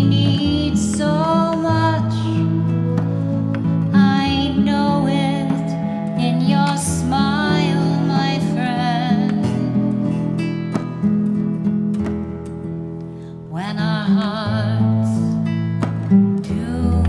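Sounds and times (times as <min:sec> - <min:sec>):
flute melody with vibrato: 0:00.0 - 0:11.6
plucked classical guitar: 0:00.0 - 0:17.0.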